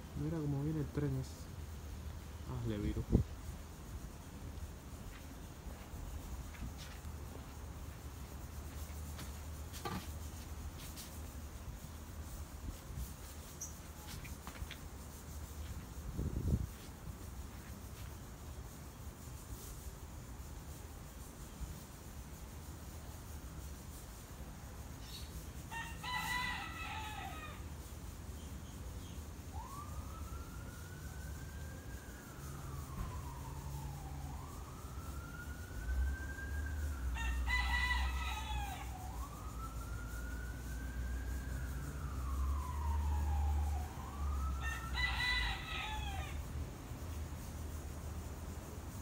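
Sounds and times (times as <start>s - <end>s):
rooster crowing: 25.7s - 27.7s, 36.8s - 39.5s, 42.3s - 46.5s
siren wailing: 29.5s - 46.4s.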